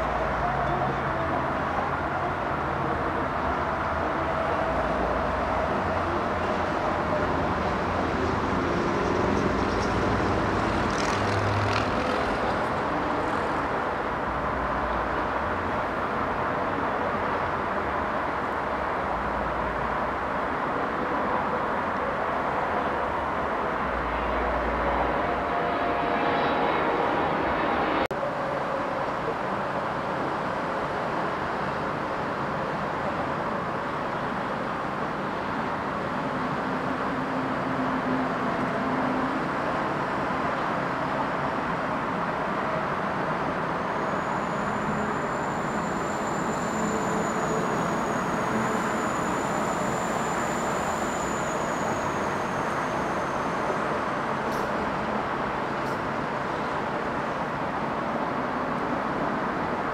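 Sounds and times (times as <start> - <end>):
traffic rumble: 0.0 - 46.0
jet engine whine: 22.4 - 28.9, 42.1 - 57.4.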